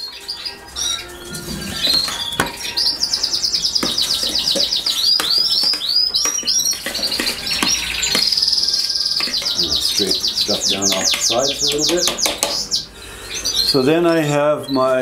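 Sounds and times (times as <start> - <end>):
canaries singing: 0.0 - 15.0.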